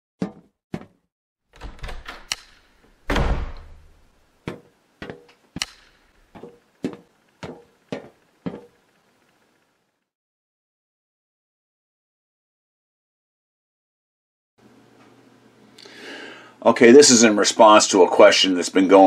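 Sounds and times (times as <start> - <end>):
hard knocks and thuds: 3.1 - 5.3.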